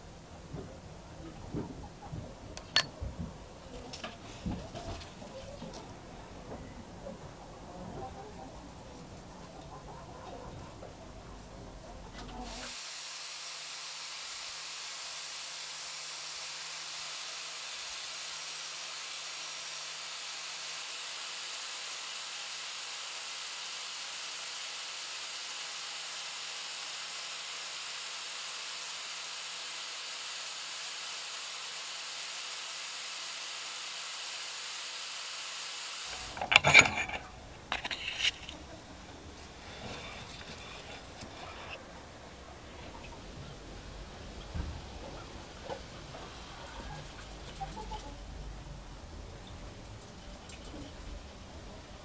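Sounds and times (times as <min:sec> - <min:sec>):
sanding disc hissing: 0:12.4 - 0:38.5, 0:39.5 - 0:41.8.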